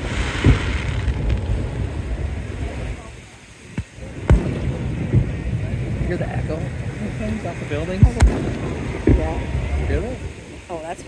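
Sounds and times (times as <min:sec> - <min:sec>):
fireworks bangs: 0:00.0 - 0:11.0
wind noise on microphone: 0:00.0 - 0:11.0.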